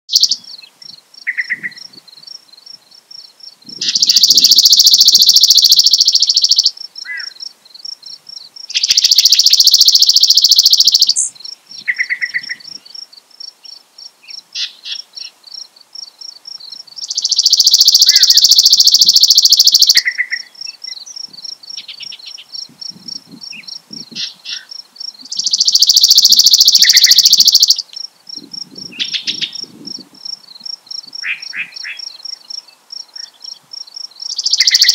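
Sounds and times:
sparrow trilling song: 0.1 - 2.0, 3.2 - 15.4, 16.6 - 34.9
fast high pulsing: 4.0 - 6.6, 17.3 - 20.0, 25.5 - 27.8.

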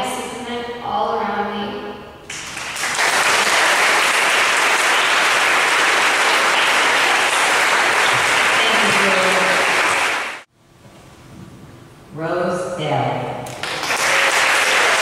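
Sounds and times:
audience applauding: 2.3 - 10.5, 13.5 - 15.0.

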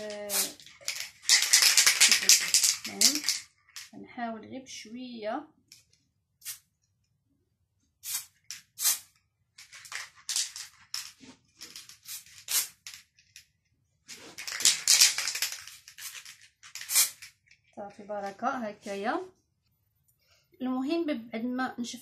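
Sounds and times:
spray can hissing: 0.3 - 0.6, 8.0 - 9.1, 12.0 - 12.8, 16.0 - 17.3.

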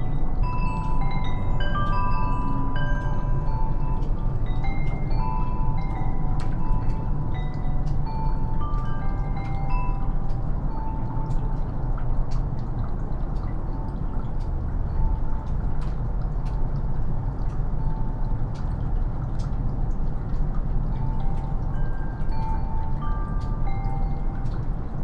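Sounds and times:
wind chime notes: 0.0 - 11.6, 20.9 - 24.8
low rumble: 0.0 - 25.0
meltwater dripping: 0.0 - 25.0.

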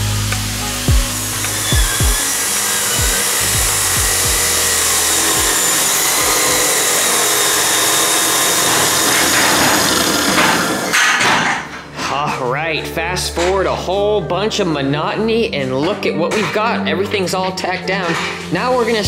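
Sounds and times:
music with deep bass hits: 0.0 - 6.7
angle grinder grinding steel: 0.0 - 11.9, 15.5 - 19.0.

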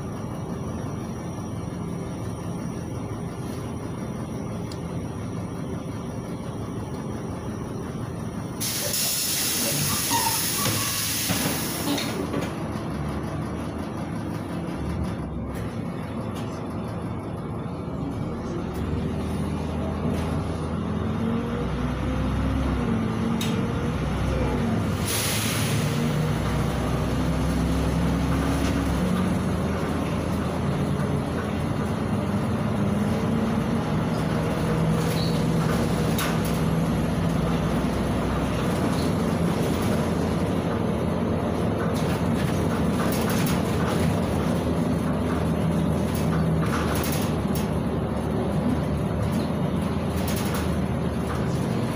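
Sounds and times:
bus engine running: 0.0 - 51.9
road noise: 0.0 - 51.9
hiss of compressed air: 8.6 - 12.0, 25.0 - 25.9.

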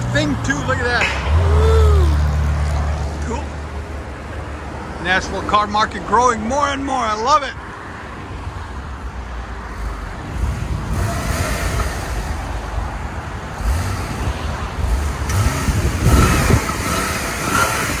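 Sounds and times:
car exhaust rumble at idle: 13.4 - 18.0.

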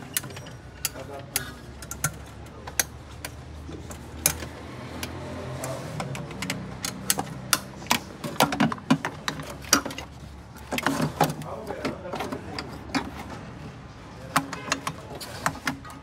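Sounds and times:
plastic clicks and knocks: 6.0 - 13.2.

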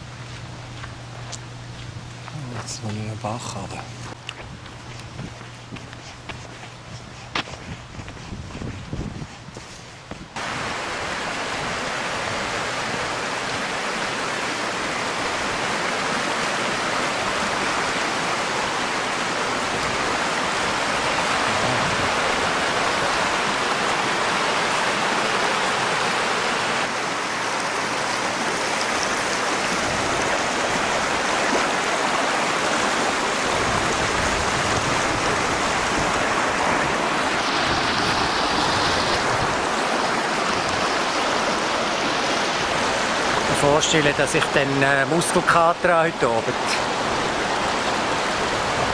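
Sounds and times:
creek rushing over stones: 10.4 - 48.9.

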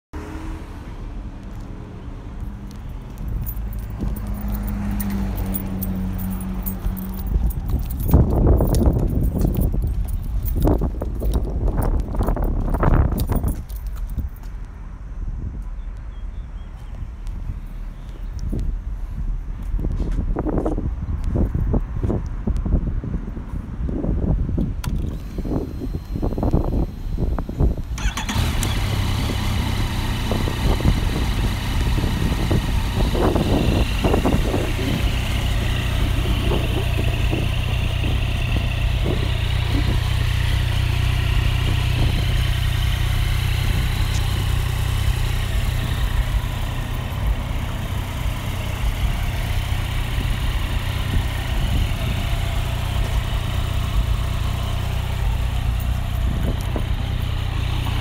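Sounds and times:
motorcycle engine idling: 25.3 - 58.0.

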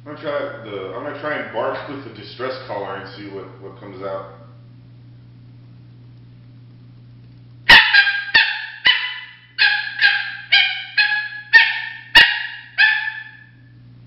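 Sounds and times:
reed predator call barks: 7.7 - 13.6.

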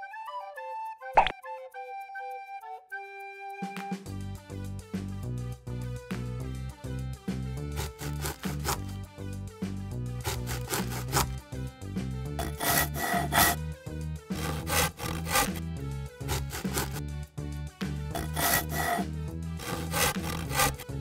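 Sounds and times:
background music with bass line: 4.0 - 21.0
knife sawing through play dough: 7.6 - 9.0, 10.2 - 11.4, 12.4 - 13.6, 14.3 - 17.0, 18.1 - 21.0.

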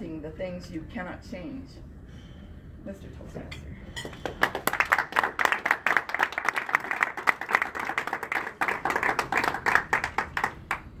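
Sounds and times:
audience applauding: 4.3 - 10.9.

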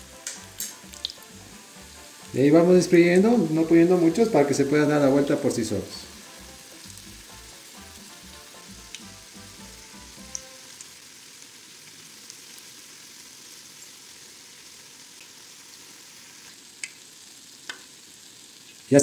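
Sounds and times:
dough sizzling in oil: 0.0 - 19.0
oil popping: 0.2 - 1.3, 16.5 - 17.9.

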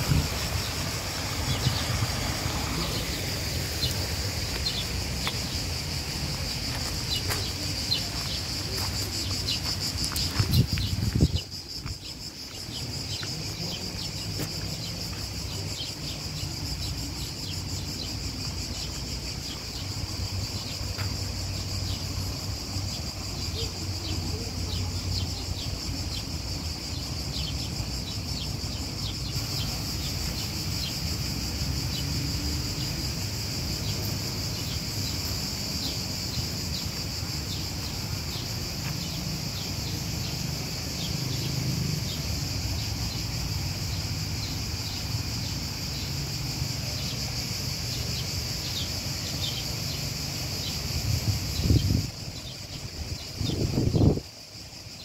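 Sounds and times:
short insect chirps: 0.0 - 24.4
high-pitched insect chorus buzzing: 0.0 - 55.0.

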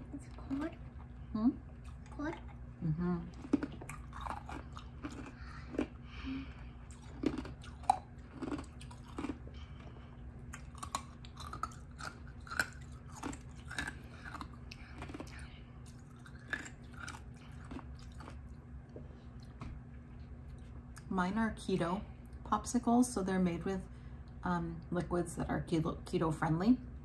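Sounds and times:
people chewing: 0.1 - 21.1.

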